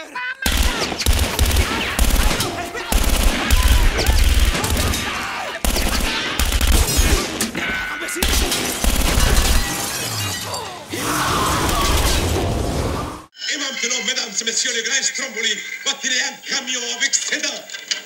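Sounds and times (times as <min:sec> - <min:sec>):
gunshots: 0:00.4 - 0:10.0
glass shattering: 0:01.7 - 0:05.6, 0:06.6 - 0:12.5.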